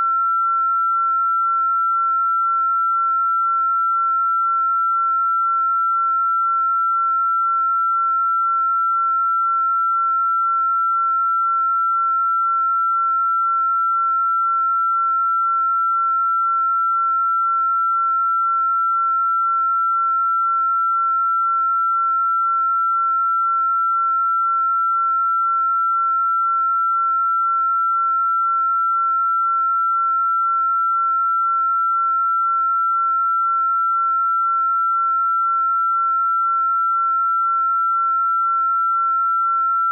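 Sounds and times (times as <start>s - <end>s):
high electronic sine tone: 0.0s - 39.9s.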